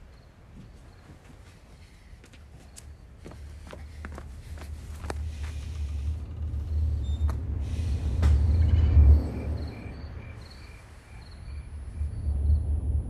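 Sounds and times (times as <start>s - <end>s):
cricket chirping: 0.0s - 13.0s
low rumble: 4.2s - 13.0s.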